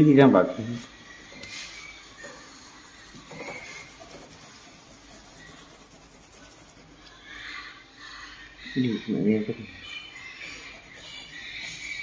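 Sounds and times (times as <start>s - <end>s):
colouring strokes on paper: 0.8s - 7.3s, 10.5s - 12.0s.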